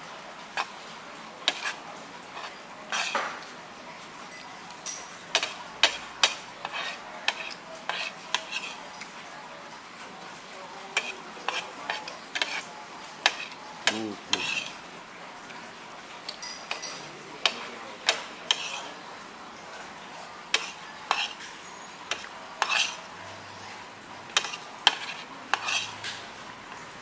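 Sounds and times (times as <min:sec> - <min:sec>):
cutlery clinking against dishes: 0:00.5 - 0:00.8, 0:01.4 - 0:03.6, 0:04.2 - 0:09.1, 0:10.8 - 0:14.8, 0:16.2 - 0:19.1, 0:20.5 - 0:26.9.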